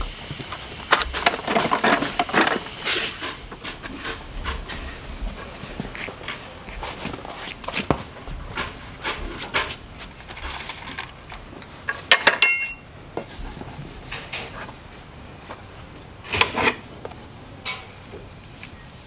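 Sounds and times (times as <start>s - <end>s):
metal tools clinking and scraping: 9.1s - 14.7s.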